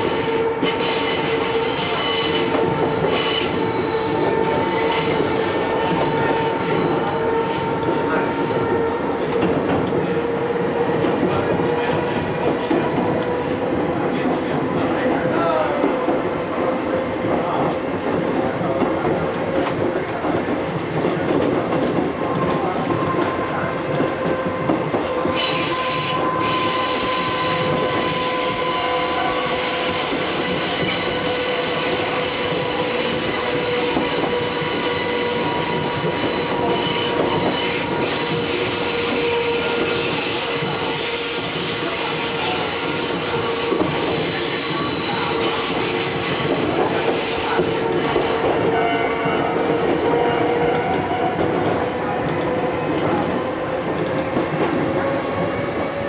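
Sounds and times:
train wheels squealing: 0:00.0 - 0:08.6, 0:25.1 - 0:53.4.

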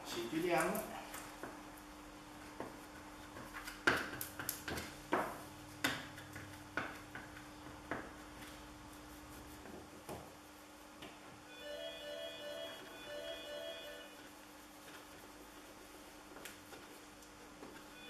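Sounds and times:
faint steady hum: 0:05.1 - 0:18.0.

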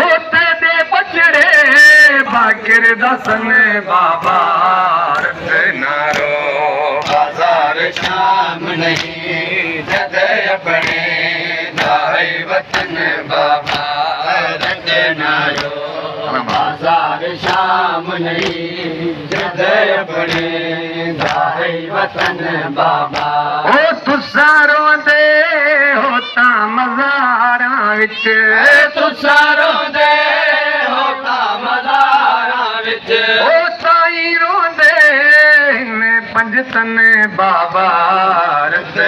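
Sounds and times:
men chanting in chorus: 0:00.0 - 0:39.0
palms slapping chests: 0:05.1 - 0:09.2, 0:09.9 - 0:14.9.

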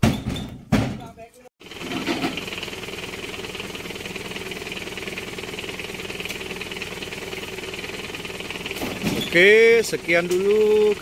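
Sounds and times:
vehicle engine idling: 0:01.6 - 0:11.0.

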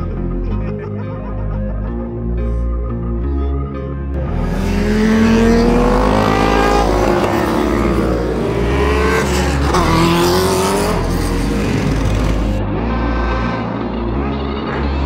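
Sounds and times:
car engine revving: 0:04.2 - 0:15.0.

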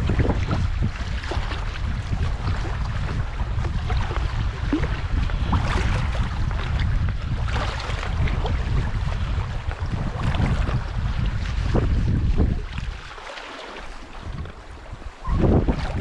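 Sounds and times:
water splashing against rocks: 0:00.0 - 0:16.0
wind buffeting microphone: 0:00.0 - 0:16.0.

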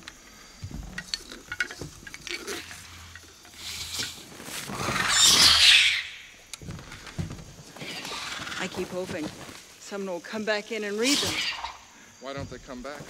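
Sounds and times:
hissing creature screech: 0:03.6 - 0:06.3, 0:11.0 - 0:11.8.

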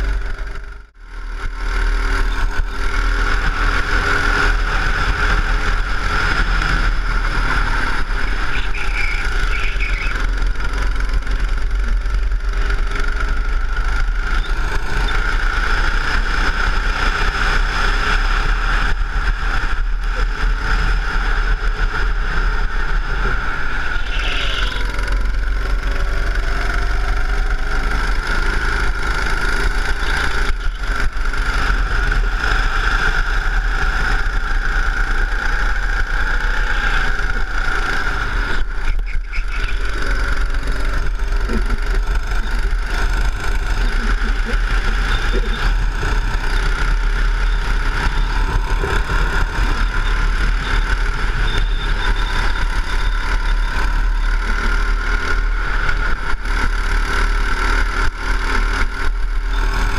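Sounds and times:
go-kart engine racing: 0:00.0 - 0:59.9.

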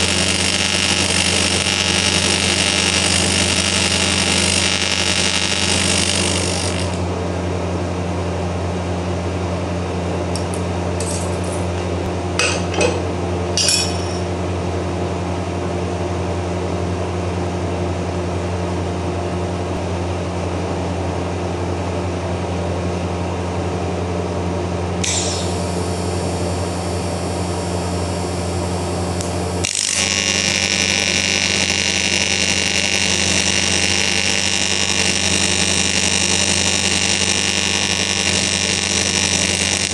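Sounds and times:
welding arc buzzing: 0:00.0 - 0:07.2, 0:10.3 - 0:14.3, 0:25.0 - 0:39.9.

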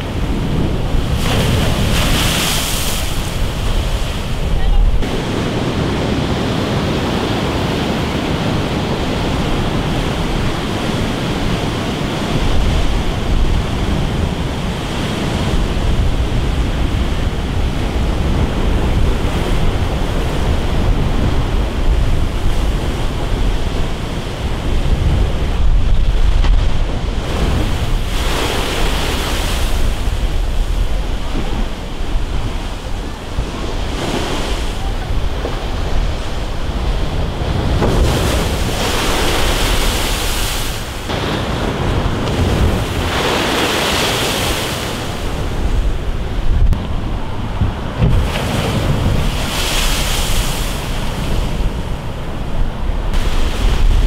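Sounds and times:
surf breaking against sea wall: 0:00.0 - 0:54.0
wind buffeting microphone: 0:00.0 - 0:54.0.

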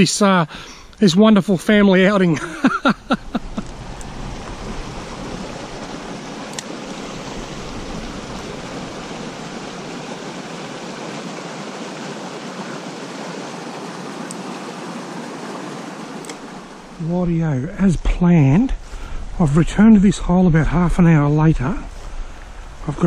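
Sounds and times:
creek water babbling: 0:00.2 - 0:23.0.

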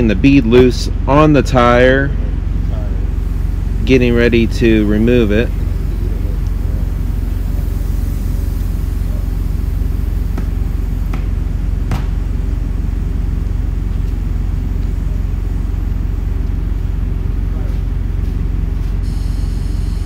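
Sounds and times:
low mechanical drone: 0:00.0 - 0:20.0
sharp knocks: 0:10.3 - 0:12.2.

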